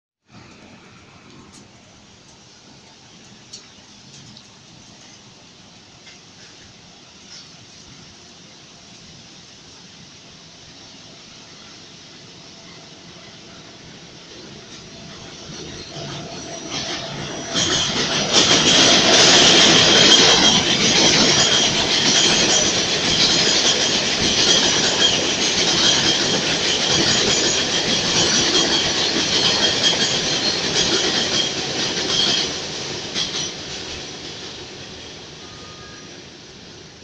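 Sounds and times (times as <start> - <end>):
subway train rumbling past: 0.2 - 37.0
steady high tone: 34.7 - 36.9.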